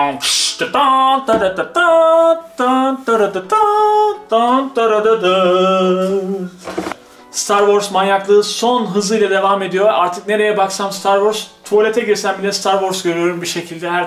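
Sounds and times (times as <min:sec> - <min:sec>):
man singing held notes: 0:00.0 - 0:06.6.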